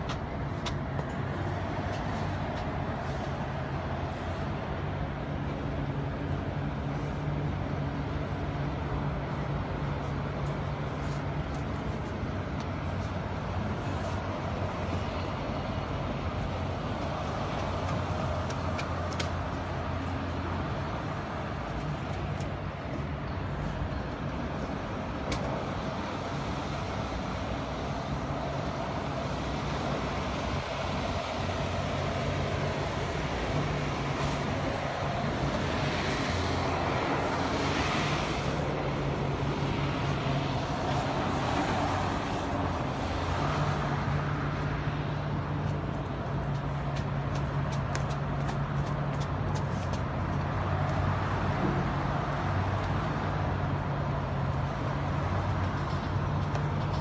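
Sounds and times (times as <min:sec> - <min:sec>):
city street traffic: 0:00.0 - 0:57.0.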